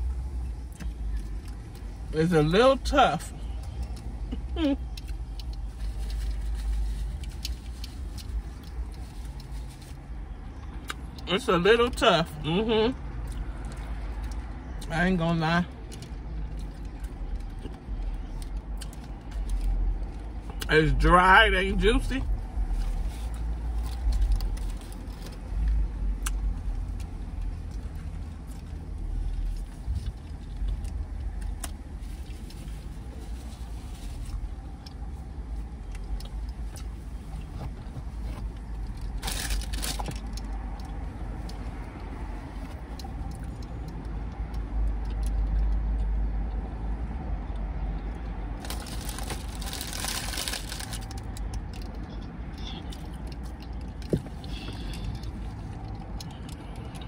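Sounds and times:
person chewing: 3.5 - 11.2, 15.8 - 20.7, 47.9 - 57.0.

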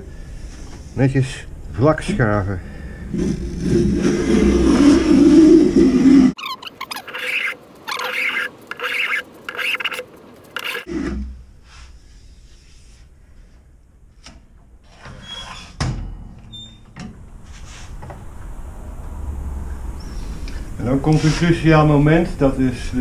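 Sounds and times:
hand plane scraping wood: 6.8 - 10.9.

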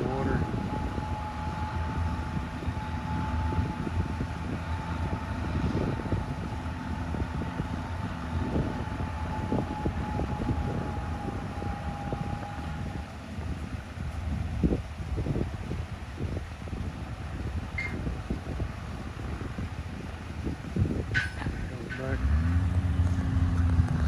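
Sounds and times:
high whine: 0.0 - 15.8
tractor engine rumbling: 0.0 - 24.0.

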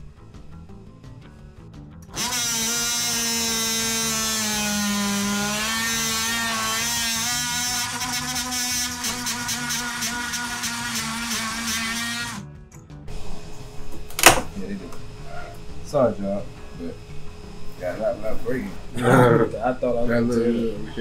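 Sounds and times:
power tool blade cutting wood: 2.0 - 12.5, 14.1 - 14.5.

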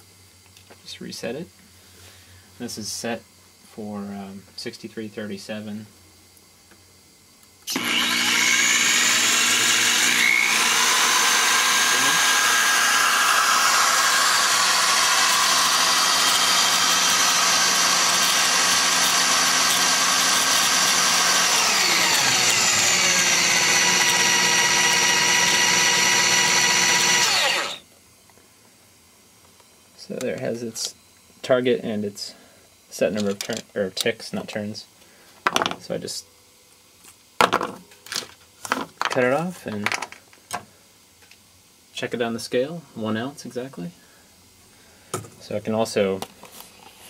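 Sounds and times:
electric drill whining: 7.7 - 27.8.

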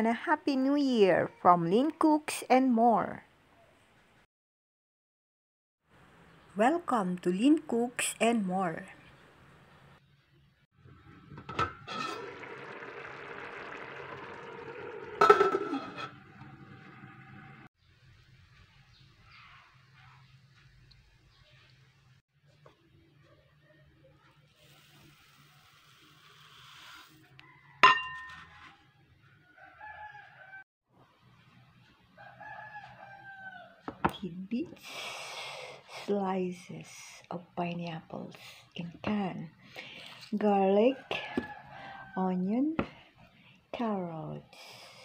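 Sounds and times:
metal pan lid clanking: 15.2 - 16.2
cooking hiss: 24.6 - 27.2
rooster crowing: 29.5 - 30.6, 32.2 - 33.8, 41.1 - 42.2.

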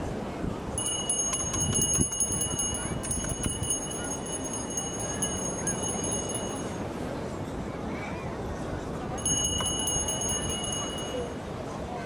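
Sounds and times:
beach chatter: 0.0 - 12.0
small bell ringing rapidly: 0.8 - 6.8, 9.2 - 11.4.

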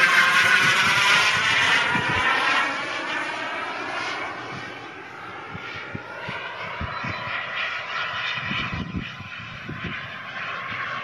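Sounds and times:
jet passing whoosh: 0.0 - 11.0
model jet turbine whining: 0.0 - 11.0.

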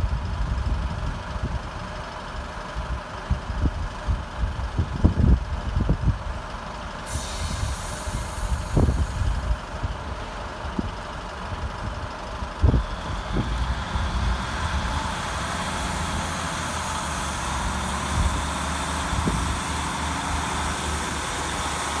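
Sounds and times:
diesel train engines idling: 0.0 - 22.0
air hiss: 7.0 - 9.5.

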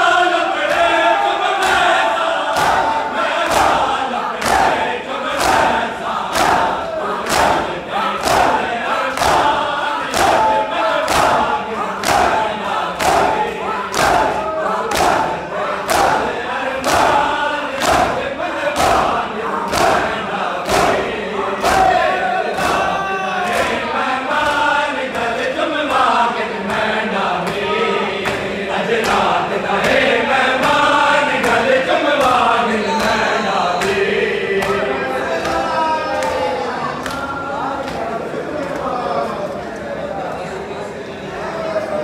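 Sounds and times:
men chanting in unison: 0.0 - 39.4
hands slapping bare chests: 13.0 - 15.3.

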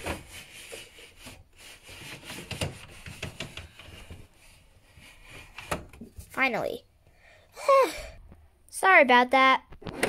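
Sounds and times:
plastic toy parts clicking and knocking: 2.4 - 4.0.

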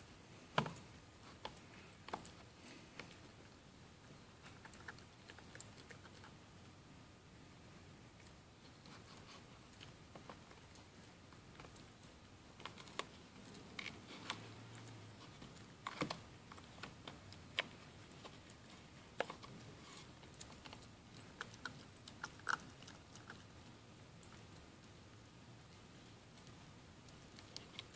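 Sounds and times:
puppy gnawing chew stick: 8.2 - 24.9.

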